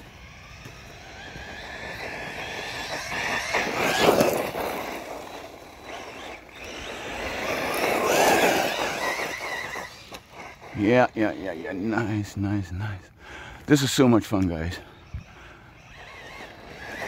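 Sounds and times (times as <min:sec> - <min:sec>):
toy truck motor whine: 0:00.0 - 0:11.8, 0:14.8 - 0:17.0
tyres on loose stones: 0:00.5 - 0:12.1.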